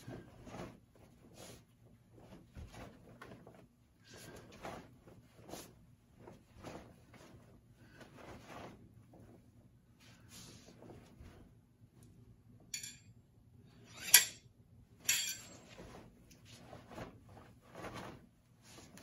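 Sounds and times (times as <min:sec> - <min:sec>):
faint brushing sounds: 0:00.0 - 0:12.4, 0:15.3 - 0:19.0
metal sai clinking together: 0:12.8 - 0:13.1.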